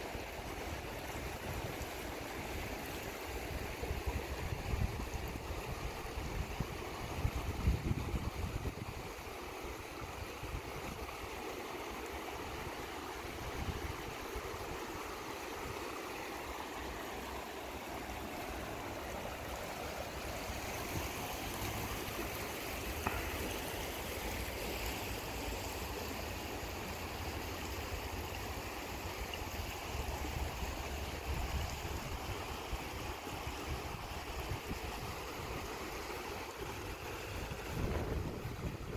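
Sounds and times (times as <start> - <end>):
whitewater rushing: 8.5 - 38.9.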